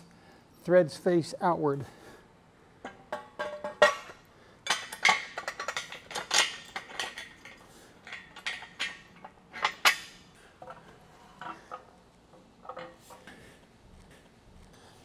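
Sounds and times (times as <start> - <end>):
metal parts clinking and clanking: 2.8 - 13.4.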